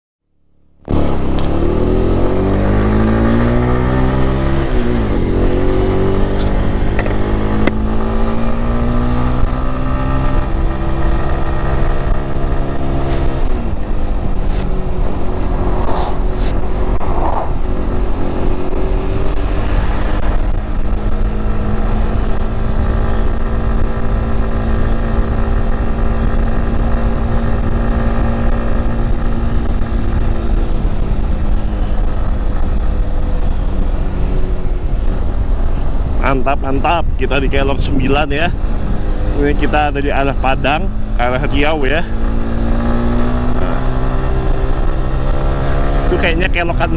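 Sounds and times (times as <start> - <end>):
motorcycle engine running: 0.8 - 46.9
wind on microphone: 12.9 - 21.2.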